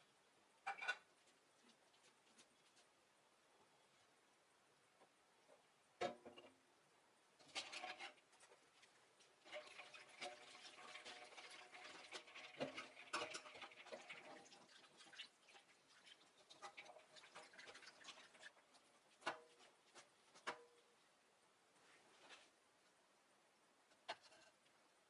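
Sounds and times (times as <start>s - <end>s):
water sloshing in metal bowl: 9.2s - 19.7s.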